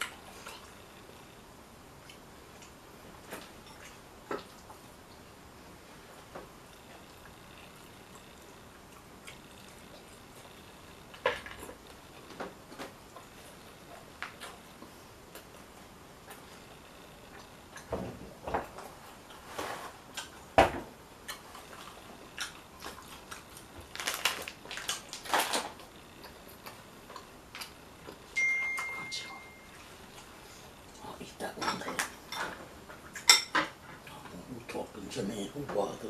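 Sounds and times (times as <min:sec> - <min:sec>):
crunching taco shell: 0:21.3 - 0:25.9.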